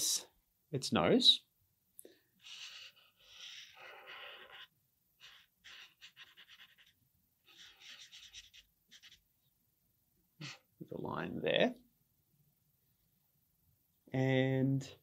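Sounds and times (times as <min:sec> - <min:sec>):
marker pen scratching on paper: 0:02.4 - 0:09.3.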